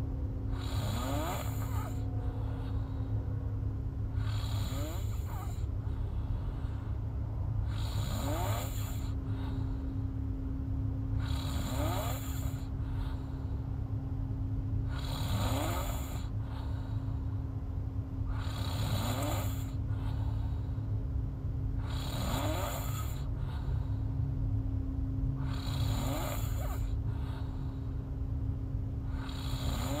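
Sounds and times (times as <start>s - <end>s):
steady low hum: 0.0s - 30.0s
woman snoring: 0.5s - 2.9s, 4.1s - 5.7s, 7.6s - 9.7s, 11.1s - 13.3s, 14.8s - 17.0s, 18.2s - 20.5s, 21.8s - 23.6s, 25.4s - 27.6s, 29.0s - 30.0s.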